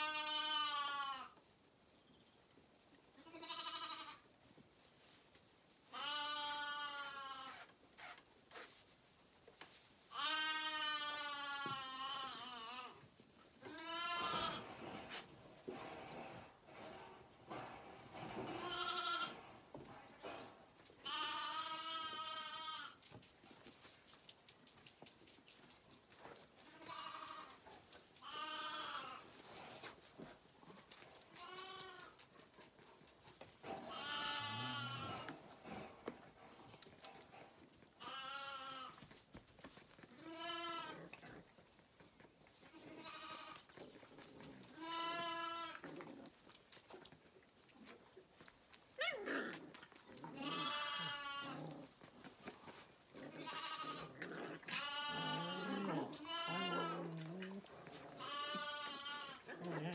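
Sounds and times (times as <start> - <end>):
lambs bleating: 0.0 - 1.4, 3.2 - 4.2, 5.9 - 8.2, 10.1 - 13.0, 13.6 - 15.2, 18.4 - 19.5, 21.0 - 23.1, 26.6 - 27.6, 28.2 - 29.3, 31.3 - 32.2, 33.7 - 35.4, 38.0 - 39.0, 40.0 - 41.4, 42.6 - 43.8, 44.6 - 46.3, 49.0 - 52.0, 53.2 - 59.9.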